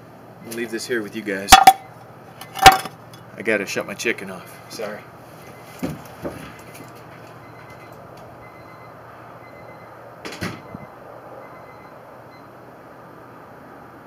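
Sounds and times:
outdoor background hiss: 0:00.0 - 0:14.0
door banging shut: 0:10.2 - 0:10.7.

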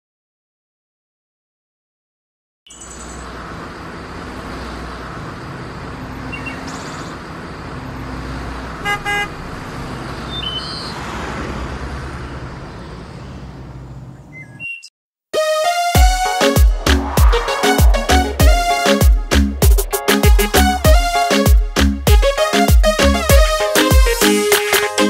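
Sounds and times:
outdoor background noise: 0:02.7 - 0:14.7
car horn toots: 0:08.8 - 0:09.4
low engine rumble: 0:16.5 - 0:19.9.

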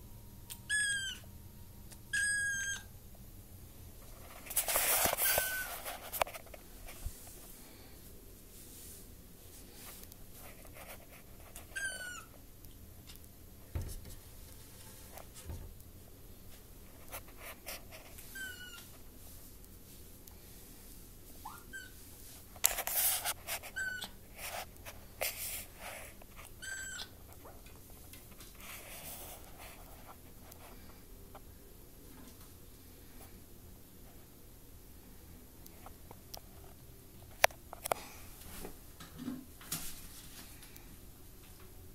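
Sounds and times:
kitten mewing: 0:00.7 - 0:01.3, 0:02.1 - 0:02.9.

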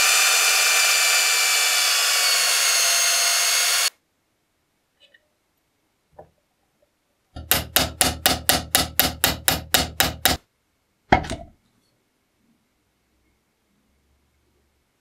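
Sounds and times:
iron set down on wooden table: 0:11.1 - 0:11.5.

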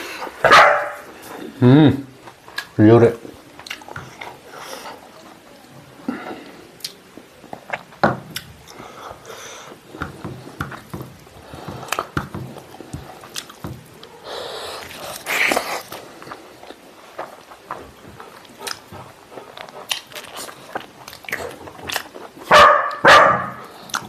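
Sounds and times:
wet chewing and lip smacking: 0:02.2 - 0:02.8, 0:03.5 - 0:05.1, 0:06.8 - 0:09.8, 0:10.7 - 0:14.2, 0:14.8 - 0:23.0, 0:23.6 - 0:24.0.

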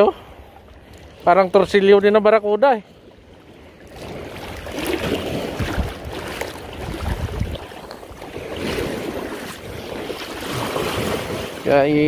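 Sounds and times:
small waves washing: 0:00.0 - 0:12.0
wind on microphone: 0:03.9 - 0:12.0.

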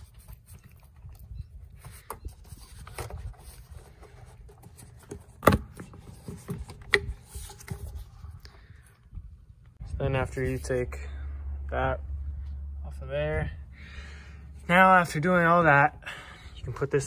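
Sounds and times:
plastic and rubber scraping: 0:01.7 - 0:08.4.

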